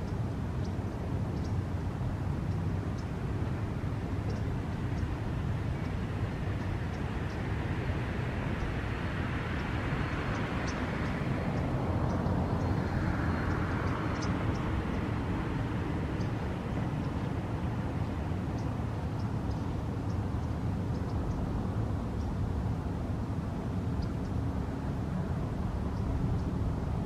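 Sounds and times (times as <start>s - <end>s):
faint high ticks: 0.0s - 1.6s, 2.4s - 3.2s, 4.2s - 5.2s, 5.8s - 7.4s, 10.3s - 15.0s, 16.2s - 21.5s
low background rumble: 0.0s - 27.0s
passing engine: 3.4s - 27.0s.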